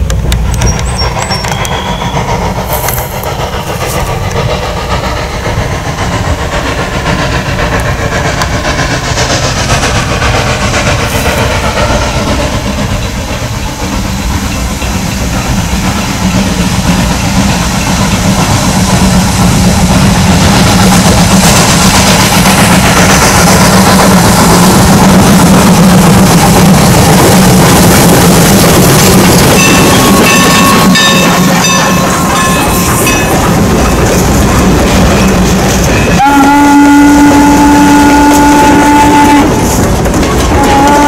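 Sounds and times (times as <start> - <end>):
steam train rumbling past: 0.0 - 41.0
high-pitched wheel squeals: 0.6 - 2.4
steam whistle: 36.2 - 39.7, 40.5 - 41.0.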